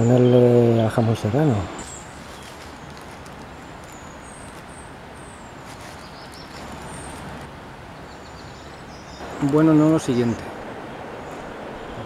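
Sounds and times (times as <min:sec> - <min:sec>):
small birds chirping: 0:00.0 - 0:12.0
low rushing background: 0:05.0 - 0:12.0.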